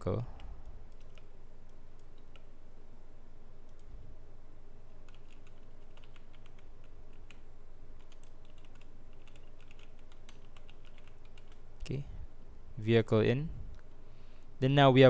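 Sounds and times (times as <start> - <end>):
computer keyboard typing: 0.4 - 1.3, 2.0 - 2.5, 5.0 - 7.4, 8.0 - 11.6.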